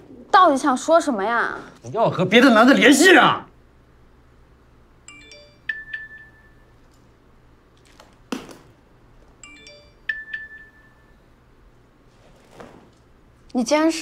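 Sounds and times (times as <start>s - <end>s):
phone notification tone: 5.1s - 6.8s, 9.4s - 11.2s.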